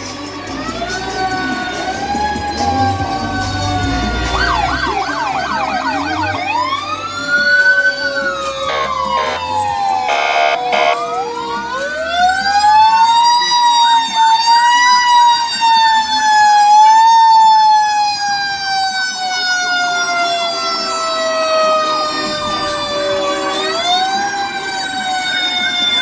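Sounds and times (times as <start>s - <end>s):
fire engine sirens wailing: 0.0s - 26.0s
horn blasts: 8.6s - 9.5s, 21.9s - 24.3s.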